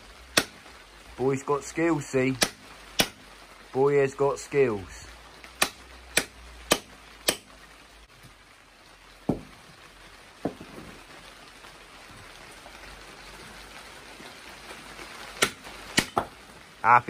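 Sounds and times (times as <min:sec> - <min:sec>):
rain hiss: 0:00.0 - 0:17.0
dull thuds of block: 0:09.3 - 0:09.6, 0:10.4 - 0:10.9, 0:15.4 - 0:16.4.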